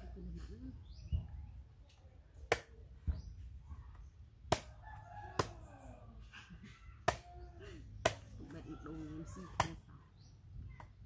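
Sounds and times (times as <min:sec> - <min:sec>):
knife chopping coconut husk: 0:04.4 - 0:05.6, 0:08.0 - 0:08.4.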